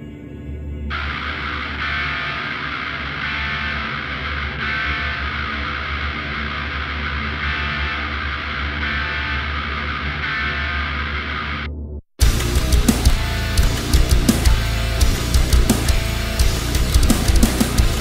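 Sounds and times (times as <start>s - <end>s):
sustained rock guitar: 0.9s - 18.0s
steady low drone: 11.2s - 18.0s.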